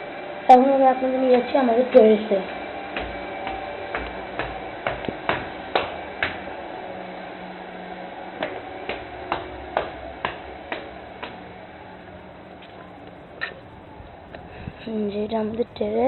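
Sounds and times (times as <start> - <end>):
footsteps climbing stairs: 1.2 - 6.6, 8.3 - 14.4.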